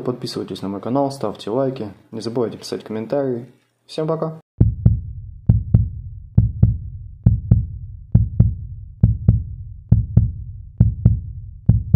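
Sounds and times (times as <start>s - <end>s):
background music double thump: 4.6s - 11.9s.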